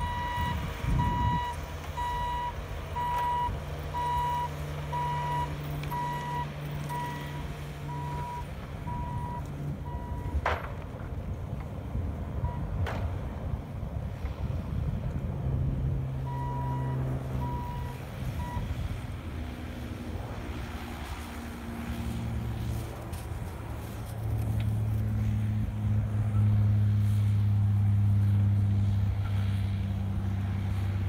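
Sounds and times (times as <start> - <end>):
backup alarm beeping: 0.0 - 10.4, 16.3 - 18.6
diesel engines running: 0.0 - 31.0
engine drone: 0.0 - 31.0.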